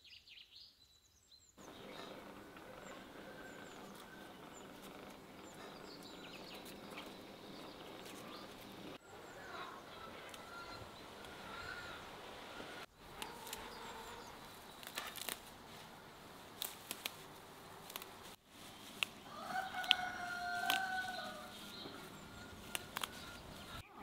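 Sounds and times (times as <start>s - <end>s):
rooster crowing: 2.0s - 4.7s, 9.2s - 14.3s, 19.2s - 23.4s
herb stems snapping: 2.0s - 8.8s, 13.0s - 23.8s.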